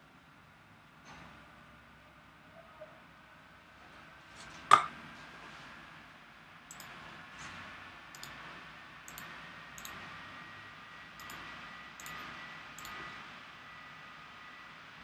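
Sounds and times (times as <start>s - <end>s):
faint mouse clicks: 6.7s - 7.0s, 8.1s - 8.4s, 9.1s - 10.0s, 11.2s - 11.4s
faint high whine: 9.1s - 15.0s.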